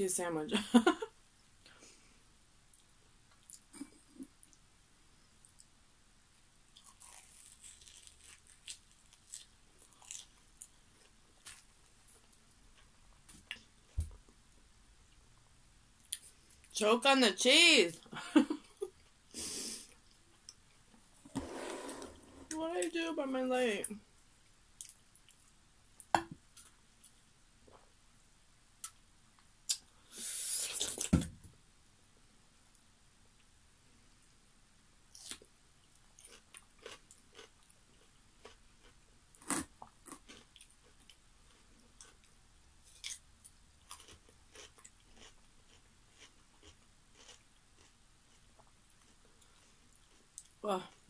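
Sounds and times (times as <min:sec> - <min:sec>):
crunching of fried batter being chewed: 0:06.6 - 0:14.4, 0:35.1 - 0:51.0.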